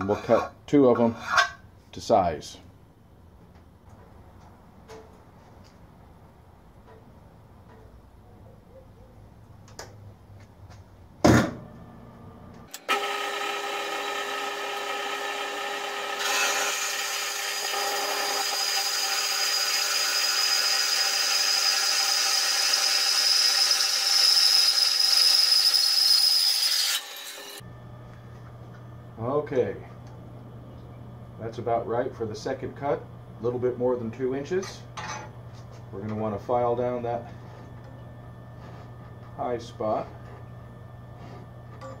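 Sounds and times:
bandsaw cutting metal: 12.7 - 27.6.

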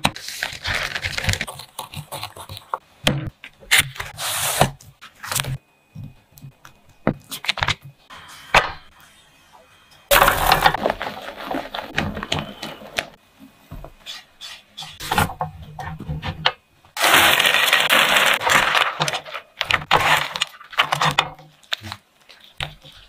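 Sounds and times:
pouring dry ingredients: 10.1 - 12.2, 17.0 - 19.4.

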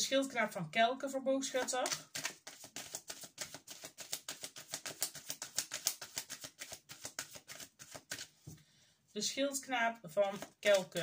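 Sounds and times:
cards being shuffled: 1.6 - 8.4, 10.2 - 11.0.

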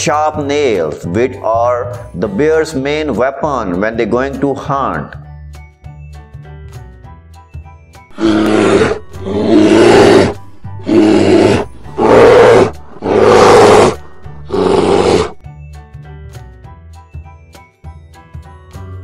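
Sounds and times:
light background music: 0.0 - 19.0
bear roaring: 8.1 - 15.4.

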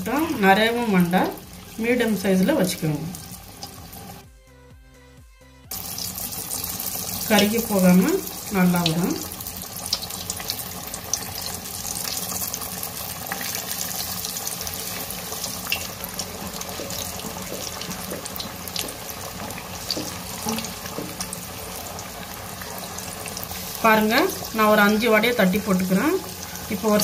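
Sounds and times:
patties deep-frying in oil: 0.0 - 4.2, 5.7 - 27.0.

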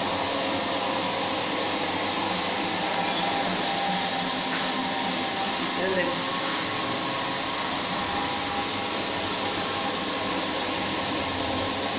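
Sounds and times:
floor scrubber motor running: 0.0 - 11.9.

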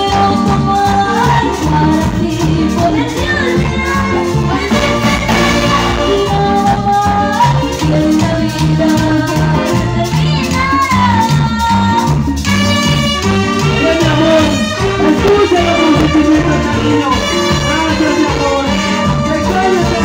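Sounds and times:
woman singing: 0.0 - 12.5
brass band playing latin music: 0.0 - 20.0
shaker percussion: 0.0 - 20.0.

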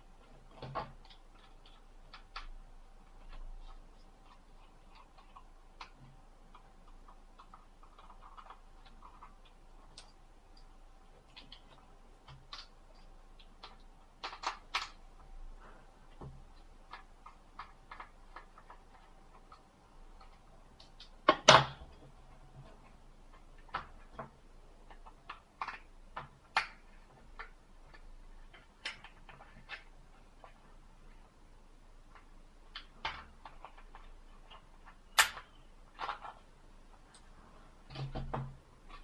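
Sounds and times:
plastic parts and tools clicking: 16.1 - 31.3, 32.0 - 39.0.

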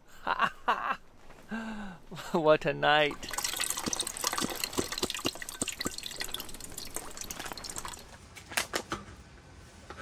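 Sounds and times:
water dripping and trickling: 3.0 - 8.2.

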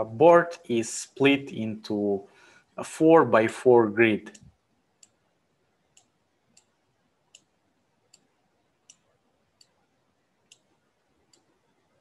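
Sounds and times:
faint computer mouse clicks: 7.3 - 7.5, 10.5 - 10.7.

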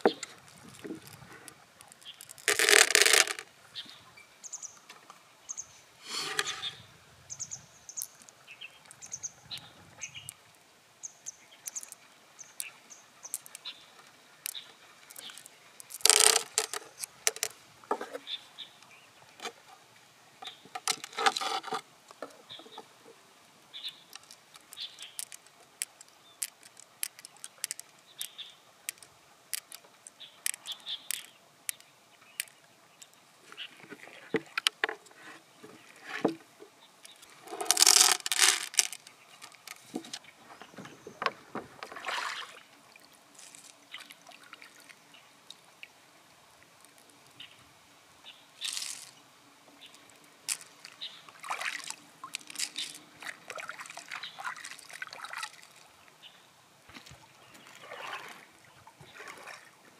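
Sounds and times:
pearls clicking together: 0.1 - 1.2, 1.8 - 3.5, 11.2 - 12.0, 12.6 - 13.7, 14.4 - 17.5, 24.1 - 32.6, 37.0 - 39.9, 48.6 - 49.2, 50.5 - 51.0, 51.7 - 53.0
knife scraping inside shell: 20.9 - 21.8.

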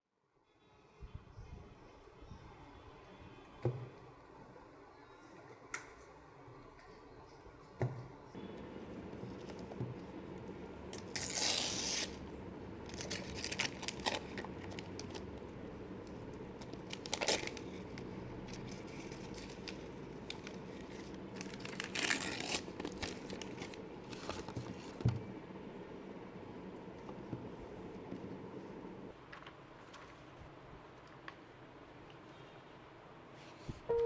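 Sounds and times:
wrapping paper tearing and crumpling: 11.0 - 12.2, 12.9 - 15.3, 16.6 - 24.9.

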